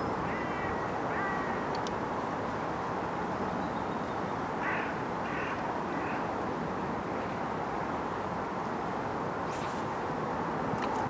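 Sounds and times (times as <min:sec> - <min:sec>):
rushing outdoor background noise: 0:00.0 - 0:11.0
faint clicks: 0:01.7 - 0:02.0.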